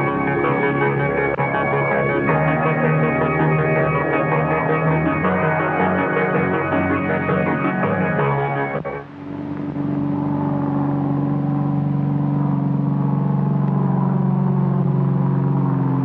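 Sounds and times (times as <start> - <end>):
music: 0.0 - 9.1
propeller aircraft engine drone: 0.0 - 16.0.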